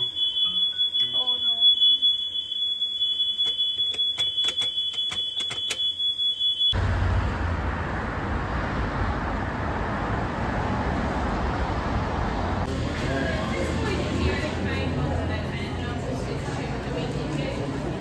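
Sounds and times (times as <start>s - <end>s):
high-pitched alarm tone: 0.0s - 6.8s
traffic rumble: 6.8s - 18.0s.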